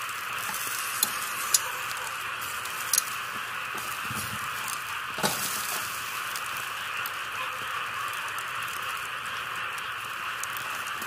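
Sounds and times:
steady rain falling: 0.0 - 11.0.

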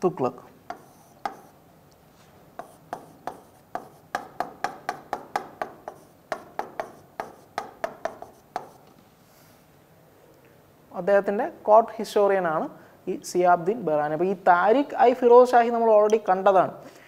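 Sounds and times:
marker squeaking on whiteboard: 0.7 - 1.6, 2.6 - 9.0.

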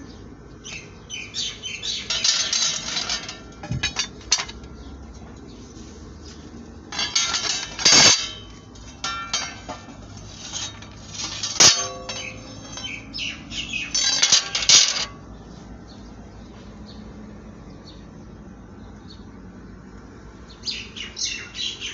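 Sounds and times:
steel discs clanking together: 1.8 - 5.6, 6.3 - 15.4
sharp metal strike ringing: 11.6 - 13.3.

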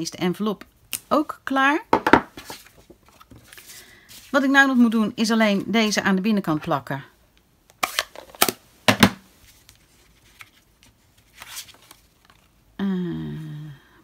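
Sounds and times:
paper rustling: 2.4 - 4.4, 9.4 - 12.6
person humming: 12.8 - 14.0.

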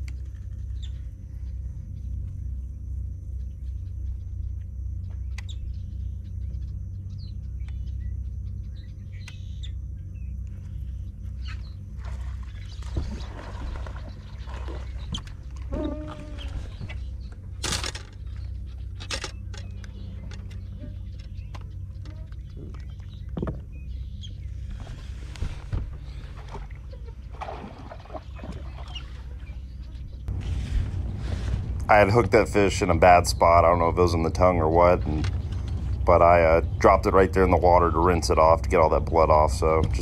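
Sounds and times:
low steady rumble: 0.0 - 40.0
water splashing: 12.0 - 17.0, 26.1 - 29.5
rustling vegetation: 24.4 - 32.8.

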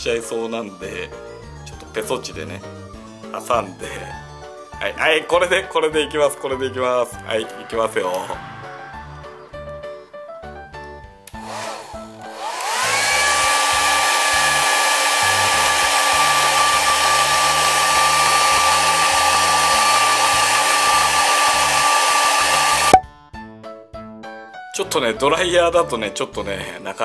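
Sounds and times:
hair dryer running: 11.3 - 23.0.

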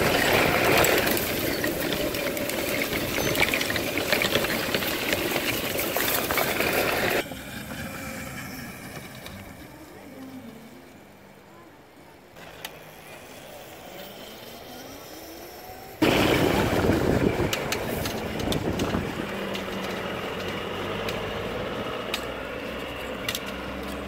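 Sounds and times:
wind and road rush: 0.0 - 9.8, 15.7 - 24.0
scattered clicks: 17.4 - 21.4, 22.0 - 24.0.

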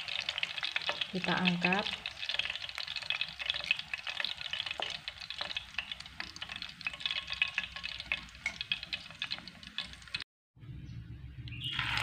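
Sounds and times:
oil crackling while deep-frying: 0.0 - 10.2, 11.6 - 12.0.

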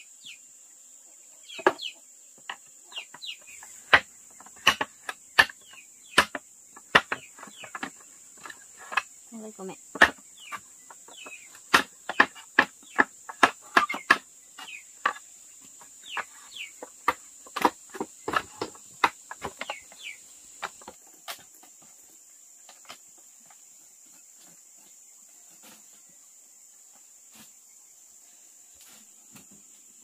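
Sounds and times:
sharp knocks and taps: 2.4 - 9.1, 9.9 - 15.2, 15.8 - 21.8.

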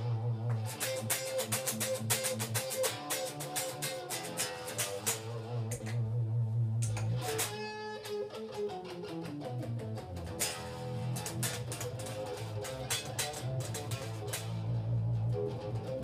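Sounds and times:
electric guitar lead solo: 0.0 - 16.0
low bass note: 5.3 - 7.2, 14.4 - 16.0.

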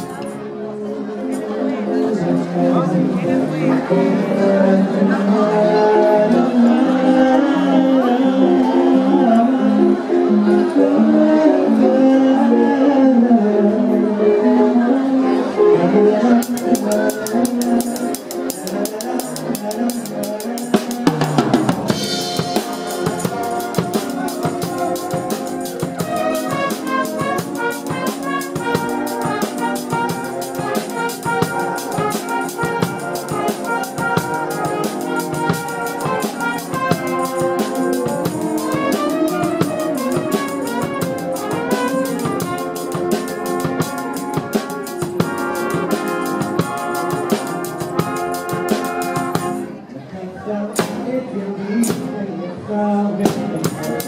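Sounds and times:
band playing: 0.0 - 49.9, 50.7 - 52.2, 53.2 - 54.0
drum kit beat: 16.4 - 49.7, 50.8 - 51.1, 53.2 - 54.0.

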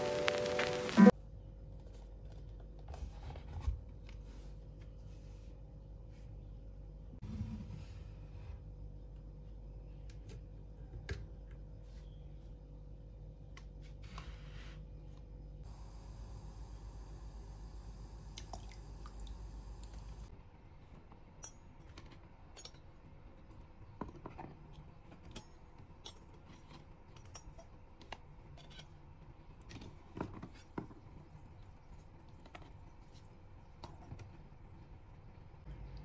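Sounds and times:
low steady hum: 0.0 - 36.0.

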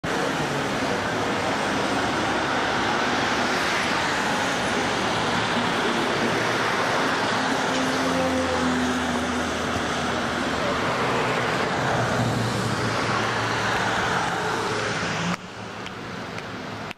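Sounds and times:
bus passing: 0.0 - 16.9
road noise rush: 0.0 - 16.9.

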